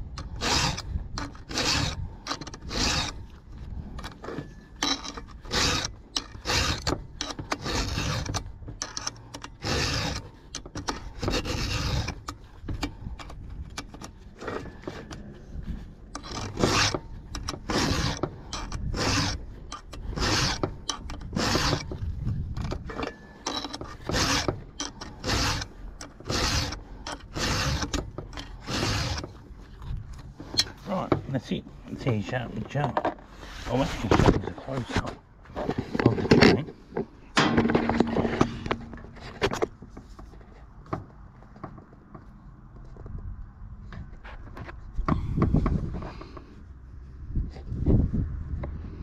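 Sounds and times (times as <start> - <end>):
file rasping on chainsaw chain: 0.1 - 15.3, 16.2 - 29.5.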